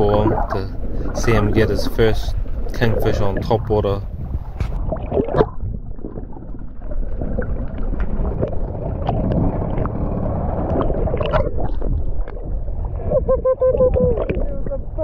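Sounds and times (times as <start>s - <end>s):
muffled sea water churning: 0.0s - 15.0s.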